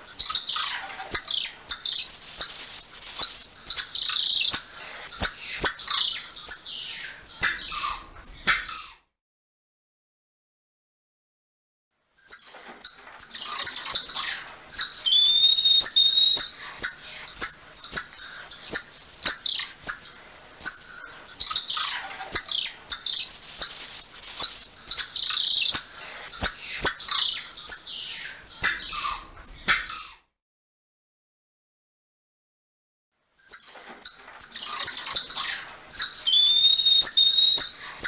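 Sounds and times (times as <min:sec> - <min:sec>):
long whistled calls: 0:01.7 - 0:05.3, 0:14.8 - 0:16.6, 0:17.3 - 0:21.6, 0:22.9 - 0:27.7, 0:35.9 - 0:38.0.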